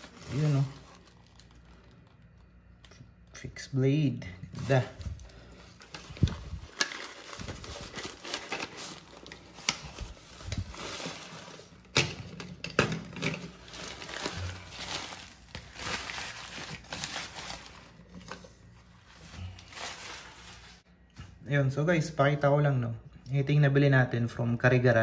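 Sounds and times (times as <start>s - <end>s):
newspaper crinkling and rustling: 0.0s - 2.7s, 4.5s - 11.9s, 13.4s - 20.9s.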